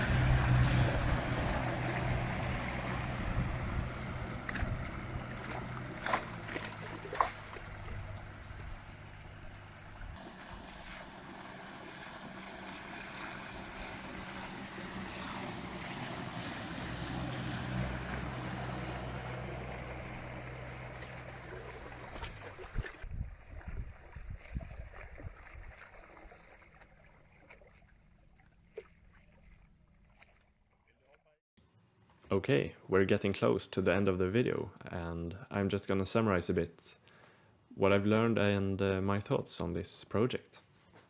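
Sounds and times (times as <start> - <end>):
wind on microphone: 0.0 - 5.5, 22.0 - 26.0
outboard motor running: 0.0 - 24.3
hull wash on water: 0.0 - 30.5.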